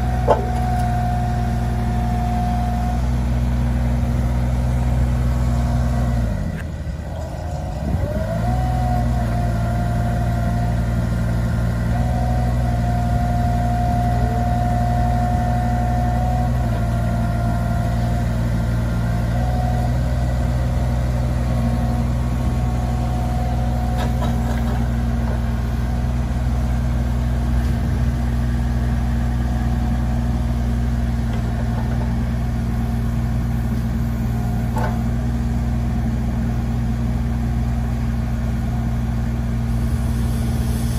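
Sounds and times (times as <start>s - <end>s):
hydraulic whine: 0.0s - 3.1s, 39.6s - 40.9s
excavator diesel engine running: 0.0s - 40.9s.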